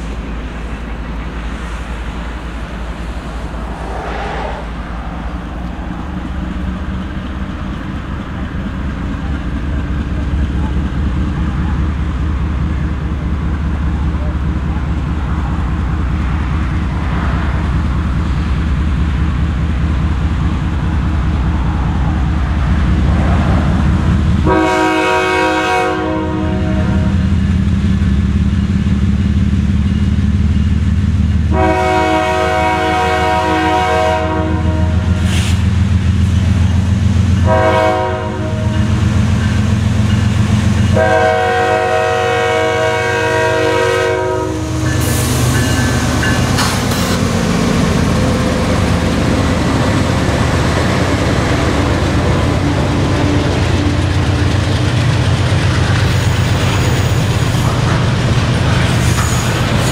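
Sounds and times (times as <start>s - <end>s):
diesel locomotive engine rumble: 0.0s - 59.9s
locomotive air horn blasts: 24.4s - 27.2s, 31.5s - 35.3s, 37.4s - 38.9s, 40.9s - 45.7s.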